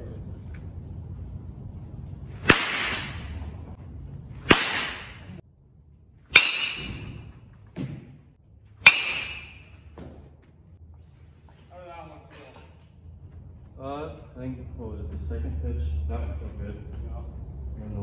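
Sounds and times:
bat cracking against ball: 2.4 - 3.4, 4.4 - 5.4, 6.3 - 8.2, 8.8 - 10.2.

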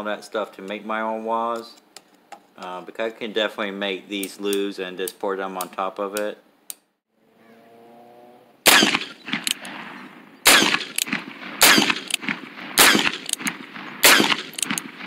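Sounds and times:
revolver gunshots with echo: 8.6 - 15.0.

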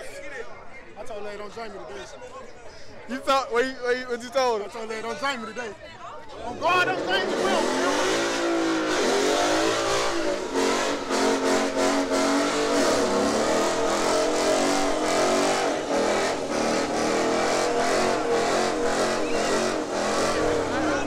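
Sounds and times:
car engine revving hard: 6.5 - 21.0.

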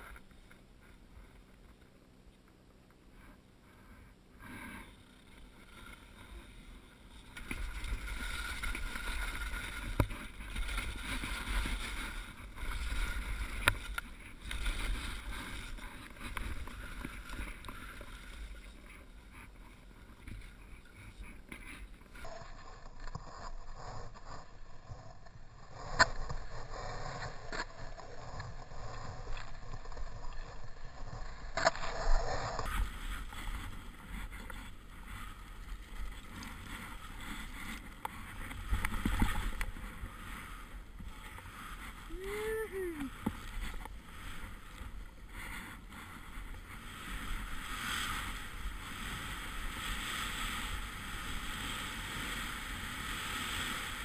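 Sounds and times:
skis hissing through snow: 32.2 - 54.0.

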